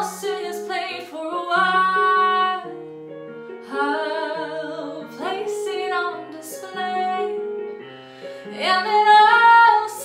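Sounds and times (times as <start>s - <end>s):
singer taking a breath: 8.0s - 8.5s.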